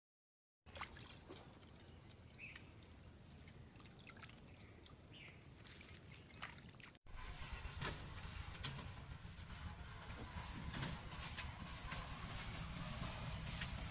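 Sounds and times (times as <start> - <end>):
water dripping and splashing: 0.7 - 7.0.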